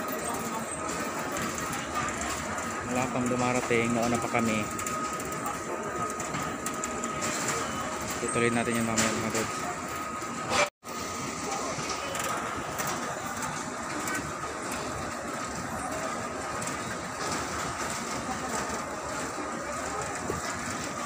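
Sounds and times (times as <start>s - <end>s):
baggage conveyor rumble: 0.0s - 21.0s.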